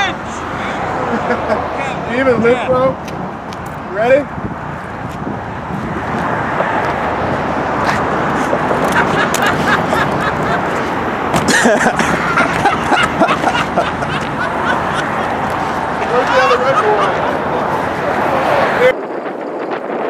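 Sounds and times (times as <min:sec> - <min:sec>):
outdoor noise: 0:00.0 - 0:20.0
group shouting and cheering: 0:11.6 - 0:18.9.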